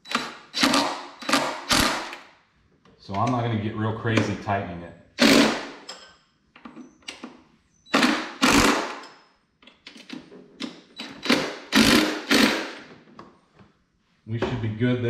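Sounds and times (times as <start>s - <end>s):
cordless impact driver bursts: 0.0s - 2.2s, 5.2s - 5.9s, 7.9s - 9.0s, 11.0s - 12.9s.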